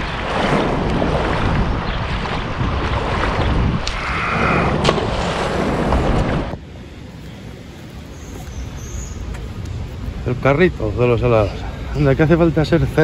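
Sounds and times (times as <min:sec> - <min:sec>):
river water sloshing: 0:00.0 - 0:10.2
wind buffeting microphone: 0:00.0 - 0:13.0.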